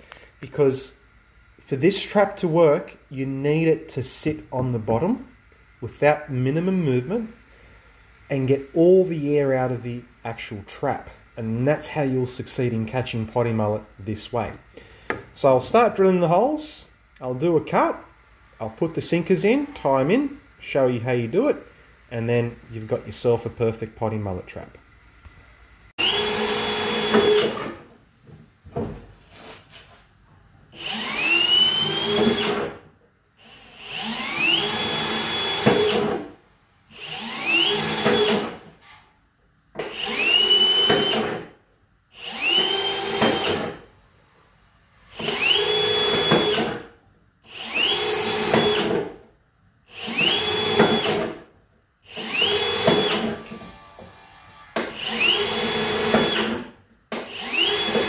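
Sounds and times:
cordless drill boring through plastic: 26.0s - 27.8s, 30.8s - 32.8s, 33.4s - 36.2s, 36.9s - 38.6s, 39.8s - 41.5s, 42.1s - 43.8s, 45.1s - 46.8s, 47.5s - 49.1s, 49.9s - 51.4s, 52.0s - 53.8s, 54.8s - 58.0s.

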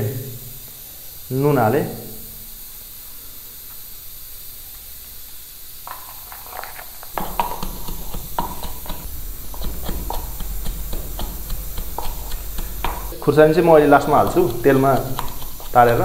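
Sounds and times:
faint steady hiss: 0.0s - 16.0s
utensil knocking in a bowl: 5.9s - 16.0s.

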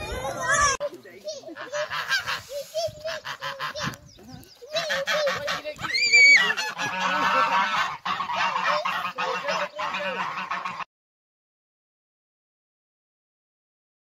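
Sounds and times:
geese honking: 1.5s - 4.0s, 4.7s - 10.9s.

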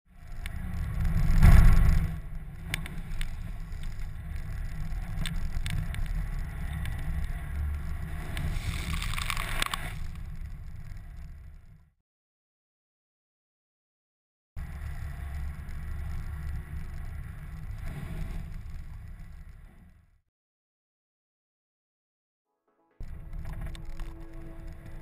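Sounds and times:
vehicle rumbling on dirt track: 0.1s - 11.9s, 14.6s - 20.2s, 23.0s - 25.0s.

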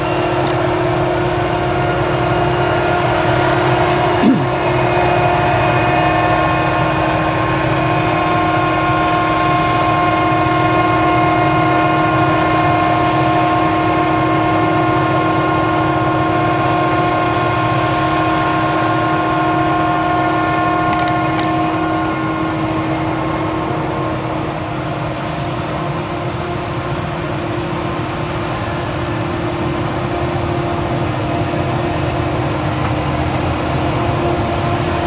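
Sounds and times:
tractor engine running: 0.0s - 3.8s, 20.6s - 23.8s
harvester engine whine and rumble: 0.0s - 20.9s, 21.6s - 35.0s.

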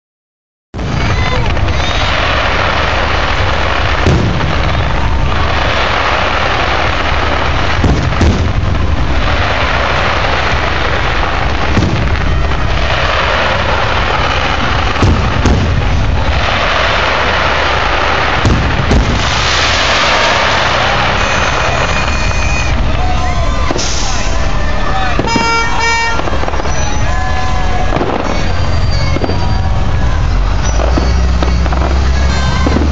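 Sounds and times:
firework shells bursting: 0.8s - 22.9s, 25.0s - 27.2s
constant loud rushing noise: 0.8s - 32.9s.

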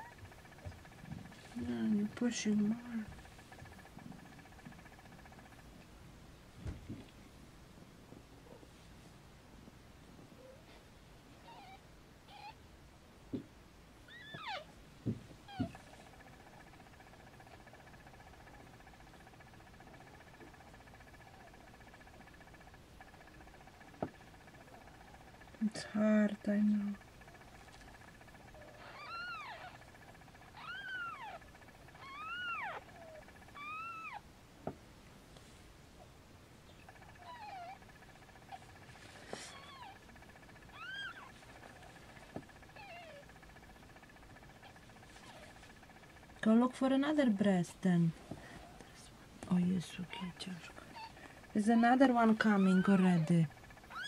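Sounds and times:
faint pulsing tone: 15.4s - 34.3s
kittens mewing: 26.9s - 34.2s, 36.8s - 46.2s, 50.2s - 54.0s.

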